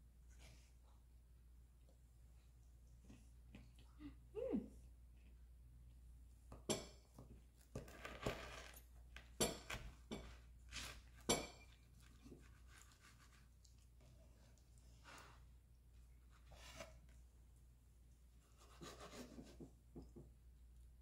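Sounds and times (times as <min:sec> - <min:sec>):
knife crunching through crust: 0:07.8 - 0:13.5
knife scraping: 0:09.4 - 0:13.6.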